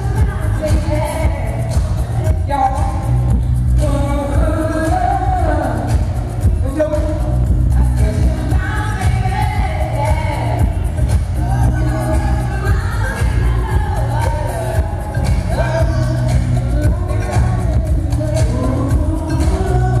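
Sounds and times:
disco pop music: 0:00.0 - 0:20.0
heavy bass line: 0:00.0 - 0:20.0
woman singing into microphone: 0:00.0 - 0:20.0.

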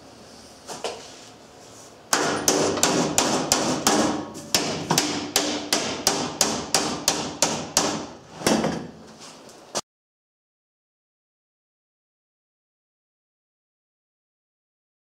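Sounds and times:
hammer striking steel: 0:02.1 - 0:08.2.

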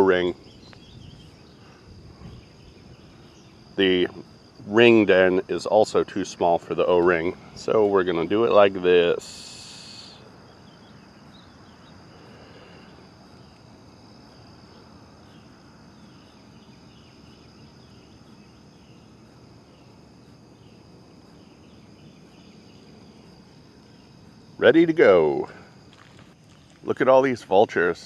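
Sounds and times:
insects trilling: 0:00.0 - 0:28.0
short insect chirps: 0:00.0 - 0:28.0.

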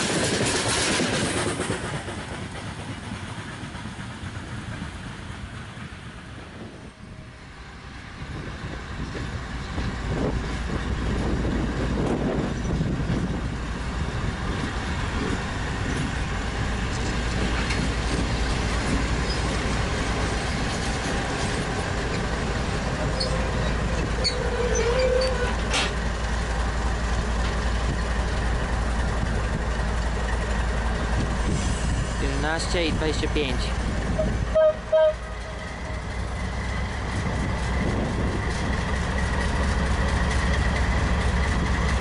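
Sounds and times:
diesel locomotive engines rumbling: 0:00.0 - 0:42.0
brief squeal: 0:24.2 - 0:25.5.

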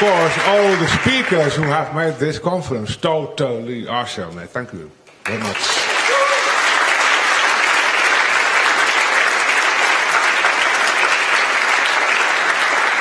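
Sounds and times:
audience applauding: 0:00.0 - 0:01.9, 0:05.2 - 0:13.0.

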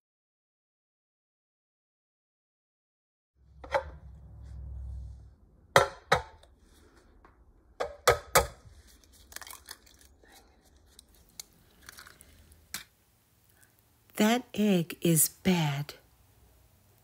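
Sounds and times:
low rumble: 0:03.4 - 0:05.8
eggshell crackling: 0:08.7 - 0:14.2.

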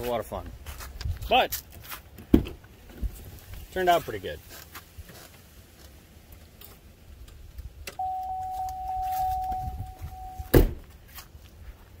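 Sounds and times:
car door shutting: 0:07.9 - 0:10.8
electronic warning chime: 0:08.0 - 0:10.5.

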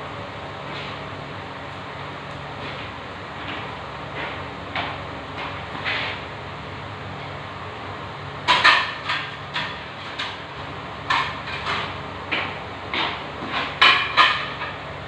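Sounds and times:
low steady hum: 0:00.0 - 0:15.0
metal pots and utensils clanking: 0:08.5 - 0:10.4, 0:11.0 - 0:14.8.

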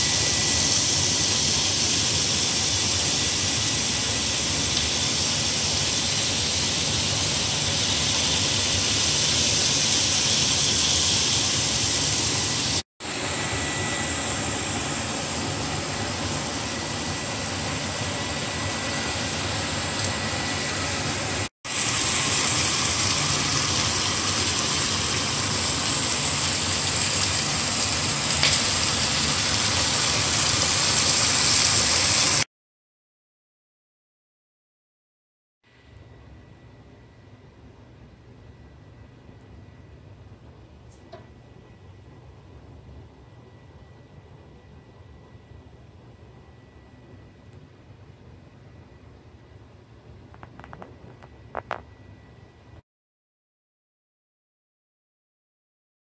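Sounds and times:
meat sizzling on electric grill: 0:00.0 - 0:32.5.

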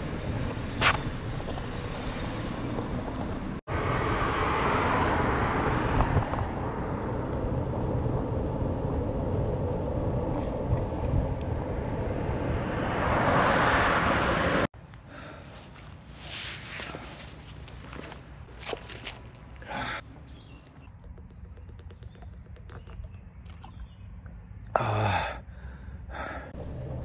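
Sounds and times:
passing traffic: 0:00.0 - 0:27.0
car passing: 0:01.8 - 0:14.7
wind rushing over microphone: 0:03.7 - 0:14.7.

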